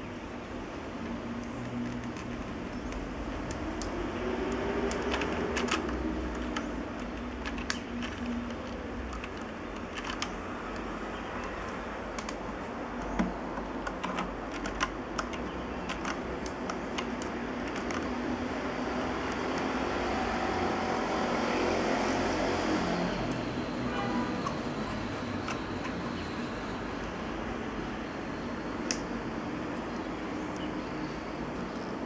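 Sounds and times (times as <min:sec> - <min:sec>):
steady background noise: 0:00.0 - 0:32.0
plastic gears clicking and rattling: 0:01.3 - 0:12.5, 0:13.1 - 0:18.4, 0:24.4 - 0:26.4.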